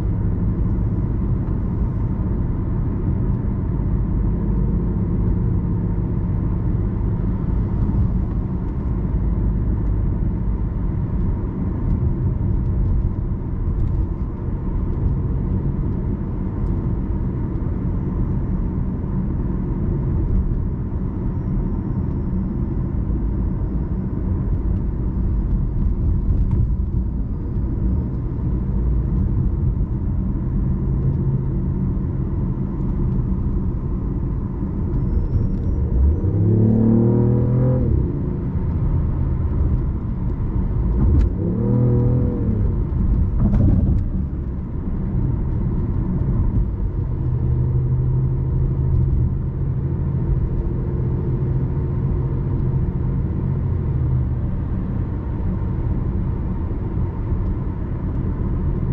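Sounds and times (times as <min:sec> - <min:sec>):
road and tyre rumble: 0:00.0 - 0:58.9.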